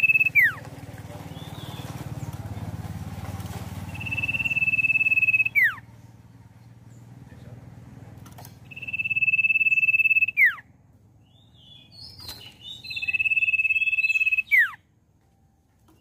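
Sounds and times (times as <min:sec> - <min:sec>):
bird chirps: 0:00.0 - 0:00.6, 0:03.8 - 0:05.9, 0:08.6 - 0:14.9
bird whistling: 0:00.0 - 0:00.6, 0:03.9 - 0:05.8, 0:08.7 - 0:10.7, 0:11.3 - 0:14.8
wing flutter: 0:00.0 - 0:05.8.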